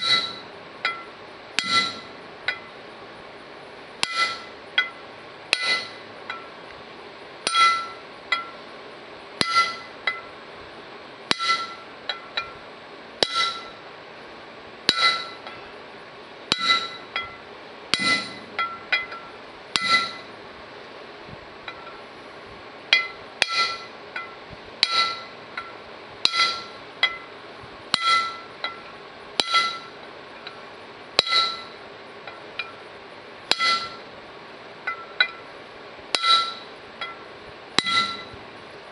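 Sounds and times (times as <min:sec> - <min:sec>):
hammer tapping metal punch: 0:00.0 - 0:02.7, 0:04.0 - 0:06.5, 0:07.5 - 0:08.6, 0:09.4 - 0:10.3, 0:11.3 - 0:12.6, 0:13.2 - 0:13.8, 0:14.9 - 0:15.6, 0:16.5 - 0:20.3, 0:22.9 - 0:27.3, 0:27.9 - 0:30.6, 0:31.2 - 0:32.8, 0:33.5 - 0:34.1, 0:34.8 - 0:35.5, 0:36.1 - 0:37.2, 0:37.8 - 0:38.4.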